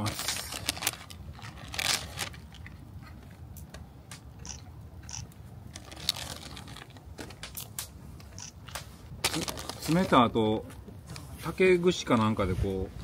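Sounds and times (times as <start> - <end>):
plastic wrapper crinkling: 0.0 - 2.8, 5.7 - 7.8, 9.2 - 10.2.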